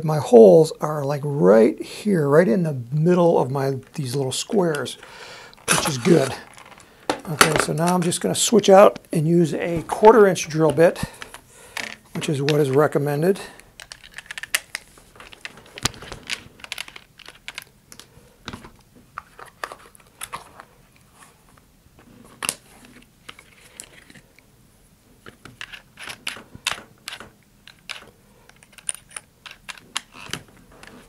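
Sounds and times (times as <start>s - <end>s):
bits rattling in plastic case: 5.6s - 7.7s, 13.8s - 17.7s.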